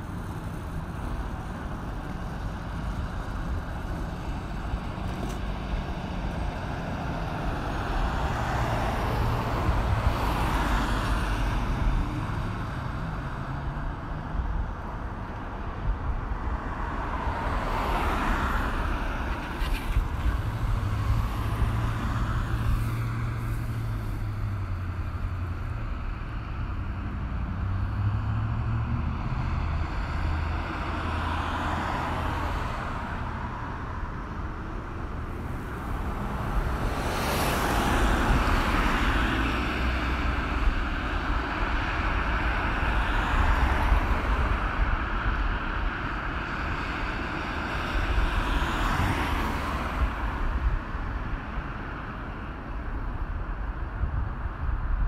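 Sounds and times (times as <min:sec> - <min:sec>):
cars and trucks passing: 0:00.0 - 0:55.0
heavy vehicle engine rumble: 0:18.6 - 0:48.4.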